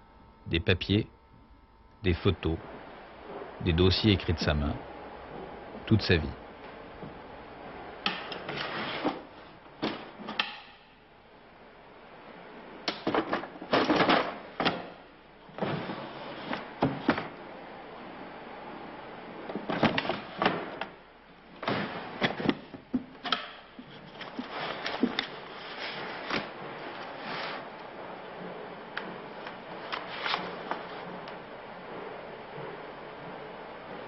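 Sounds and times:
objects handled and knocked: 8.0 - 10.8, 12.9 - 17.4, 19.5 - 31.4.

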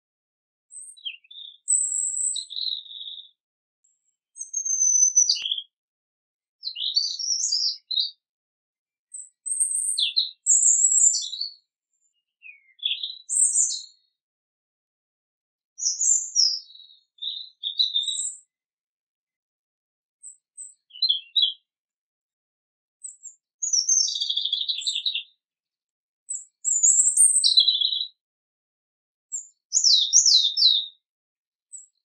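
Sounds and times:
robin singing: 0.7 - 3.4, 4.3 - 5.8, 6.6 - 8.2, 9.1 - 14.2, 15.8 - 18.5, 20.2 - 21.7, 23.0 - 25.4, 26.3 - 28.2, 29.3 - 31.0, 31.7 - 32.0.

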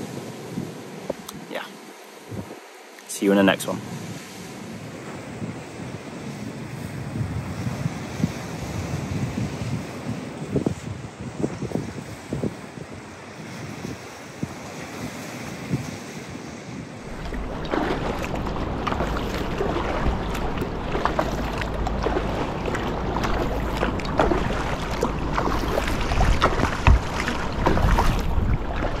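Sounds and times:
wind rumble on microphone: 0.0 - 1.4, 2.2 - 2.6, 3.8 - 29.0
sea waves splashing on rocks: 17.0 - 29.0.

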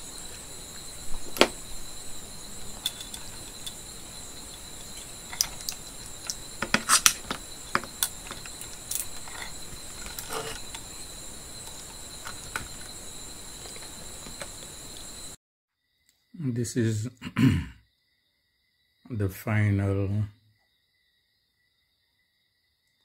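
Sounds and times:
high-pitched whine: 0.0 - 15.4.

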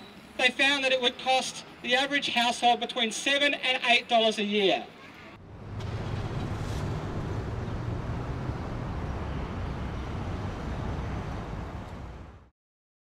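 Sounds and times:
street traffic: 0.0 - 12.5
tram rumbling past: 5.4 - 12.5.

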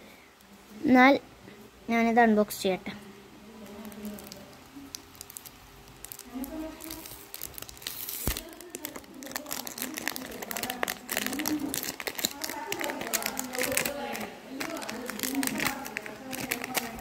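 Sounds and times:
plastic wrapping crinkling: 3.6 - 17.0.

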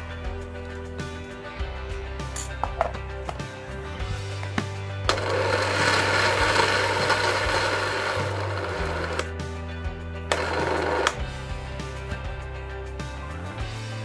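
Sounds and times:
electric food chopper running: 4.6 - 9.4, 10.2 - 11.4.

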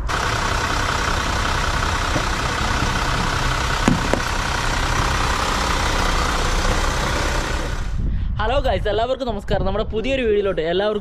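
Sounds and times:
motor vehicle running: 0.0 - 8.1
short knocks: 3.8 - 4.5.

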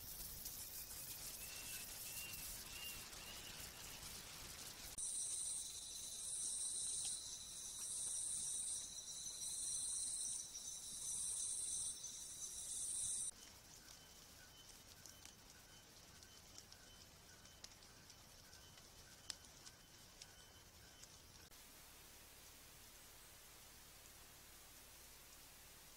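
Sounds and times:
faint hiss: 0.0 - 16.1, 21.2 - 25.9
insects pulsing song: 0.0 - 21.5
steady high insect trill: 0.0 - 21.5.

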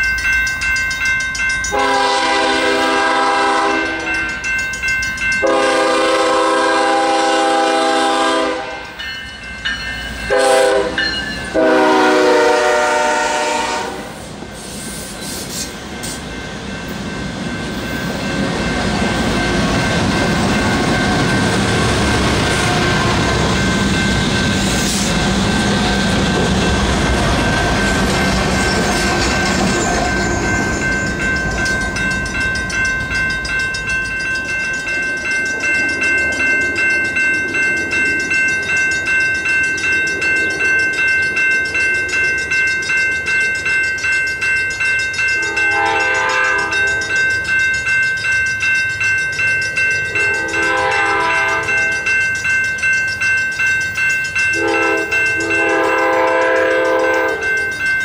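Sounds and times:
crossing warning bell dinging: 0.0 - 58.0
train horn blasts: 1.7 - 4.2, 5.4 - 9.0, 10.3 - 14.2, 45.4 - 47.0, 50.2 - 52.0, 54.6 - 57.4
locomotives rumbling past: 15.8 - 42.4.

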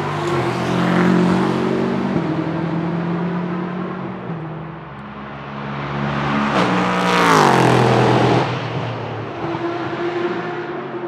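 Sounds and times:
race car passing at speed: 0.0 - 11.0.

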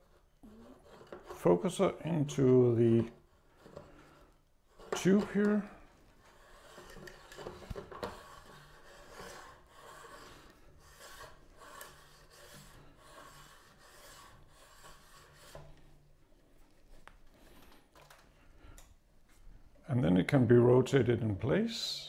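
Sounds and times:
metal threads rubbing and scraping: 0.0 - 16.2.

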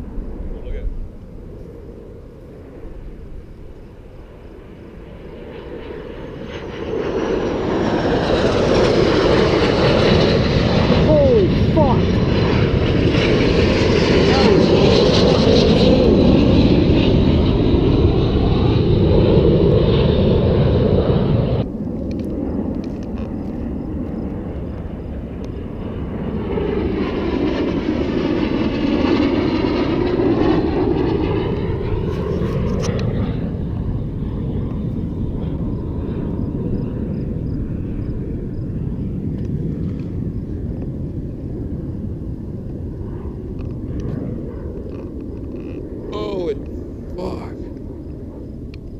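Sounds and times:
low rumble: 0.0 - 6.6
aircraft flying past: 0.0 - 48.9.

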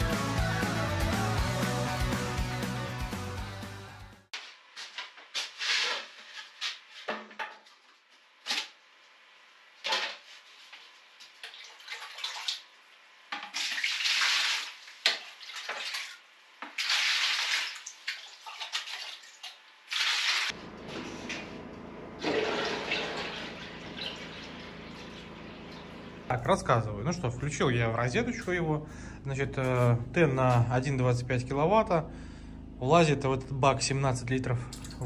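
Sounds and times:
water splashing into plastic bucket: 13.4 - 20.5, 22.2 - 25.3
water pouring into tank: 13.5 - 20.5, 22.2 - 25.8.

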